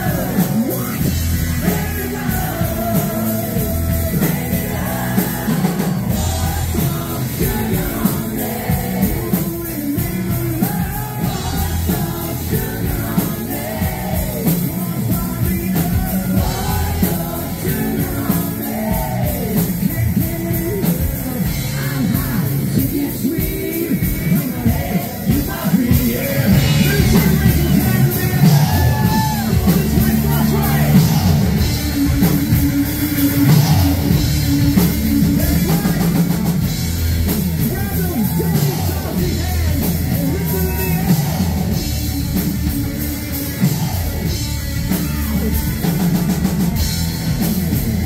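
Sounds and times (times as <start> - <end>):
electric guitars: 0.0 - 48.0
rock drum beat: 0.0 - 48.0
singer belting vocals: 0.0 - 48.0.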